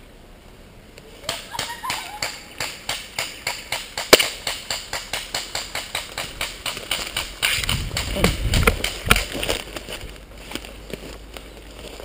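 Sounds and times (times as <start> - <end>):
footsteps through leaf litter: 8.4 - 12.0.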